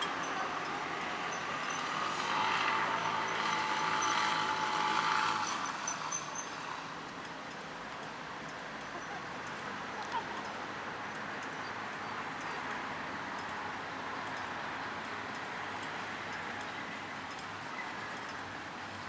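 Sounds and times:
traffic hum: 0.0 - 19.0
vehicle passing: 0.0 - 19.0.

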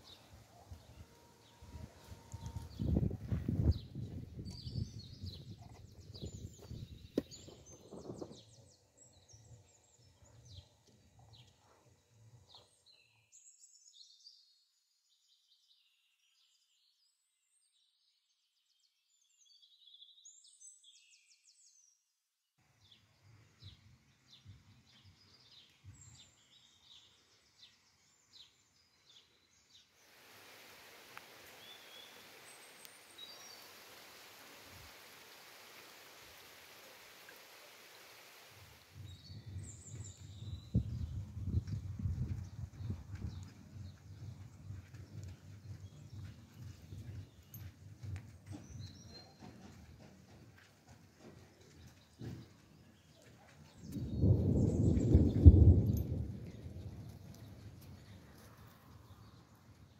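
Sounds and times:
small birds chirping: 0.0 - 17.6, 22.8 - 30.2, 31.1 - 59.9
water flowing over stone: 30.1 - 39.0.

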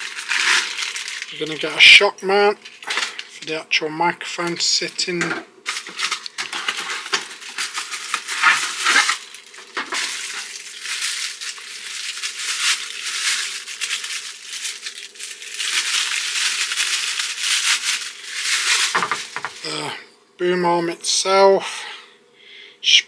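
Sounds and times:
plastic packaging crinkling: 0.0 - 2.0, 2.6 - 3.4, 5.6 - 19.8
cardboard packing handled: 5.7 - 19.7.

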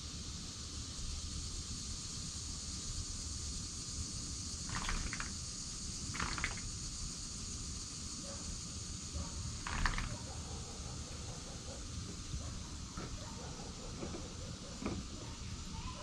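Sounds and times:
high hiss: 0.0 - 16.0
fox eating from bowl: 4.7 - 5.3, 6.1 - 6.7, 9.6 - 10.2.

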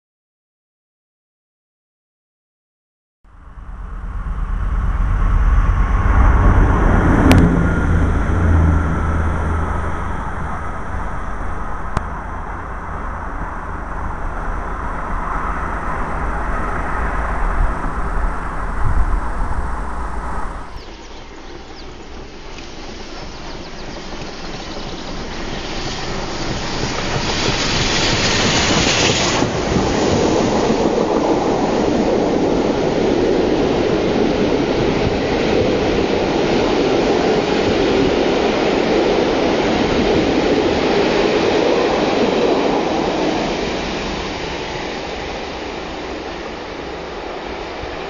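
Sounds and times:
steam train passing: 3.4 - 48.0
high steam hiss: 5.1 - 48.0
wheels clattering on rails: 20.4 - 48.0.

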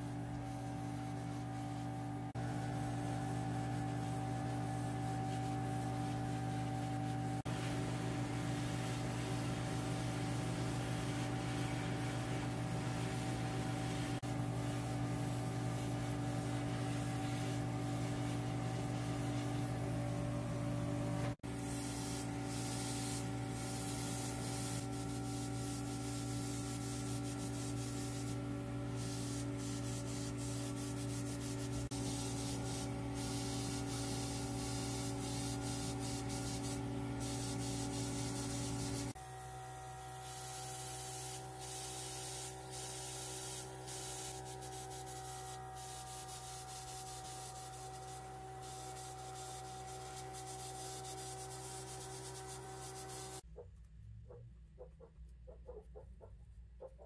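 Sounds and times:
rubbing and sanding: 2.7 - 7.8.

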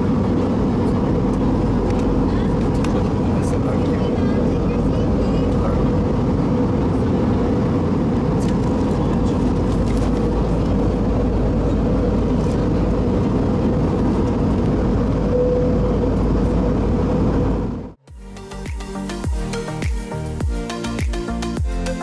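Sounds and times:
airplane cabin drone: 0.0 - 22.0.

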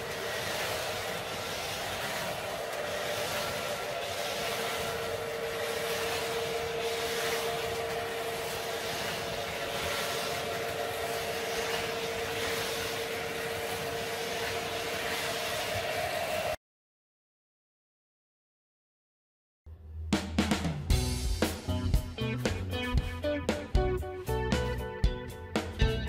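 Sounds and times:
model train and slot cars rolling: 0.0 - 16.6
motor whine: 0.0 - 16.6.

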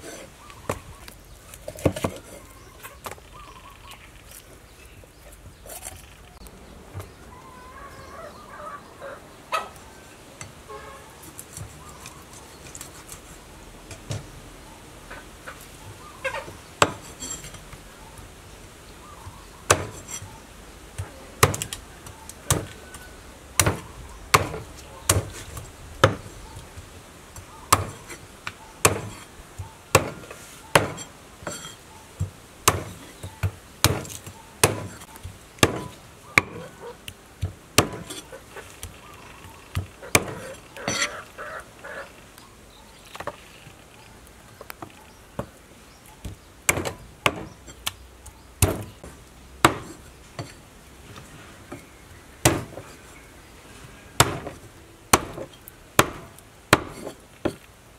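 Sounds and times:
knife chopping through bone: 19.7 - 20.2, 21.4 - 21.8, 23.6 - 26.3, 27.7 - 28.2, 28.8 - 31.7, 32.6 - 36.8, 37.4 - 38.3, 39.8 - 41.1, 46.7 - 47.6, 48.6 - 49.0, 49.6 - 50.5, 52.4 - 52.8, 54.2 - 57.6.

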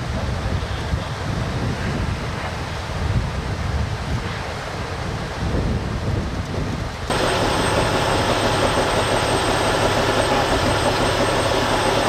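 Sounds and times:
diesel truck engine running: 7.1 - 12.0
faint high whine: 7.1 - 12.0.

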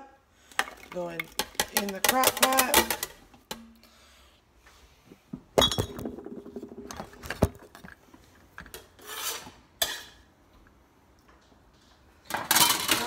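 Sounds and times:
kitchenware clinking: 12.3 - 13.0.

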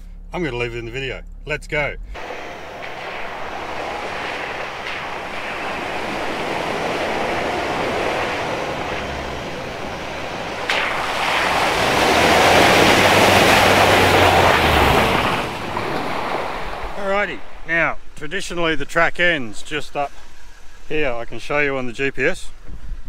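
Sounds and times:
vehicle driving on dirt track: 1.8 - 21.5
rush of water spray: 2.2 - 17.8.

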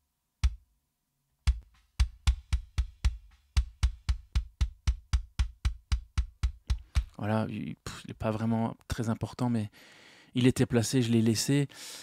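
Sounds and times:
kick drum thumps: 0.4 - 0.7, 1.4 - 7.2.

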